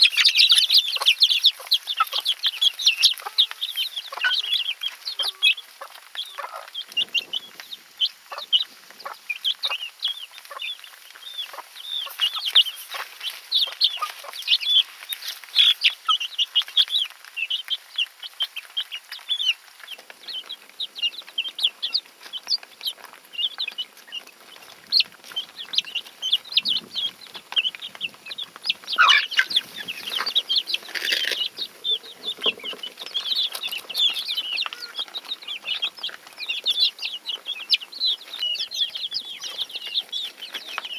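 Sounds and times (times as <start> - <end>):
chicks peeping: 0.0 - 40.9
scuffling noises: 26.8 - 40.9.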